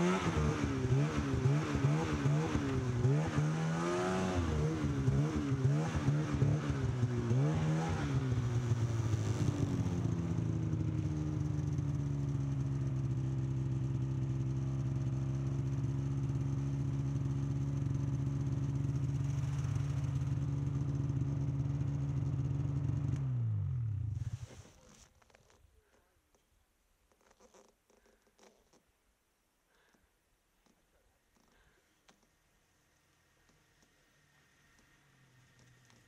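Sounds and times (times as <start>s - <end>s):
snowmobile engine revving and idling: 0.0s - 25.1s.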